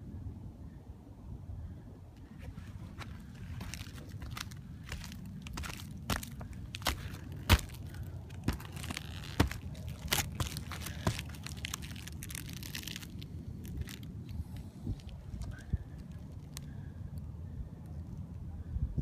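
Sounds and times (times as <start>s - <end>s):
low steady rumble: 0.0s - 19.0s
footsteps crunching on snow: 2.4s - 14.1s.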